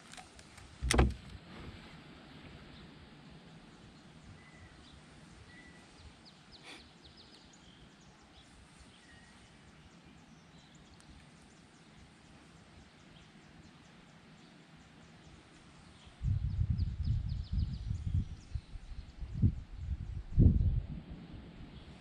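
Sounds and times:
faint bird chirps: 3.8 - 20.2.

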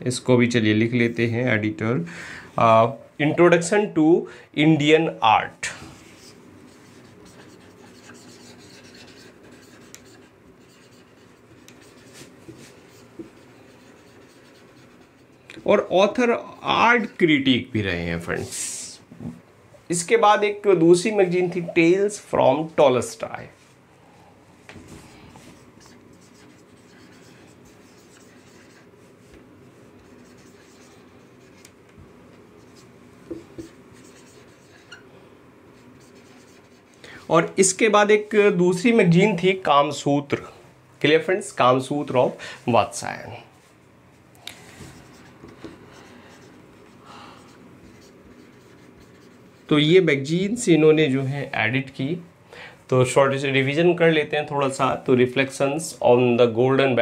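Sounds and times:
marker scratching on whiteboard: 6.0 - 17.3, 24.8 - 31.8, 32.5 - 35.1, 35.7 - 36.9, 44.6 - 50.3.

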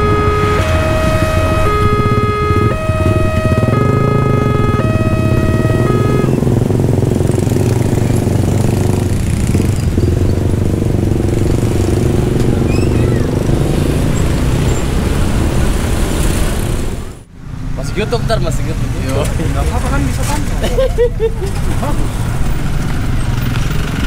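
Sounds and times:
train horn chord: 0.0 - 6.4
diesel train running: 0.0 - 24.0.

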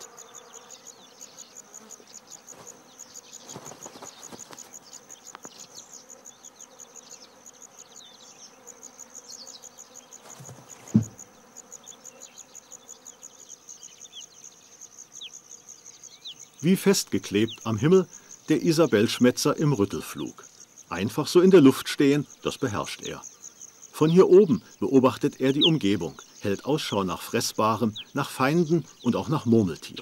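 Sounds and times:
flies buzzing: 0.0 - 30.0
insects chirring: 0.0 - 30.0
low thump: 10.4 - 11.2.

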